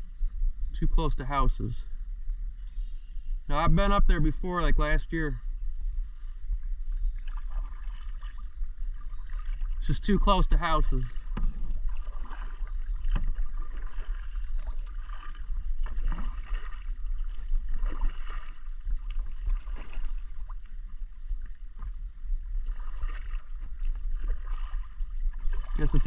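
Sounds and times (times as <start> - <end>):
steady low rumble: 0.0 - 26.0
paddle splashes and drips: 6.2 - 26.0.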